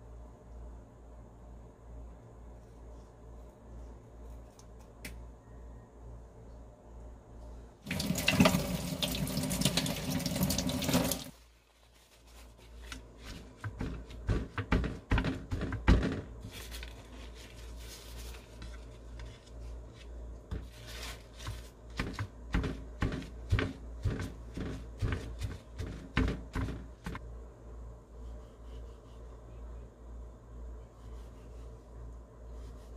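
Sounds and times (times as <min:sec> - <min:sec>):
paper towels crinkling: 0:10.9 - 0:14.2, 0:16.4 - 0:22.2.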